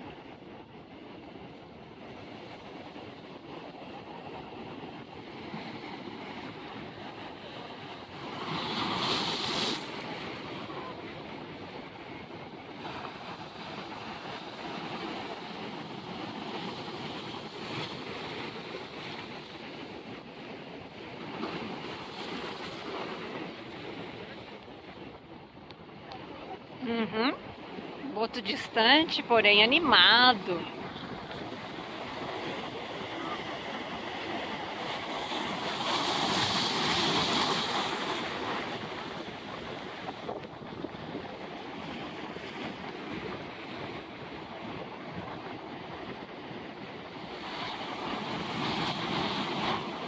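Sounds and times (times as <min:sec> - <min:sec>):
wind buffeting microphone: 0:00.0 - 0:50.0
surf washing over rocks: 0:02.4 - 0:50.0
surf breaking on rocks: 0:07.6 - 0:11.0, 0:28.9 - 0:44.3.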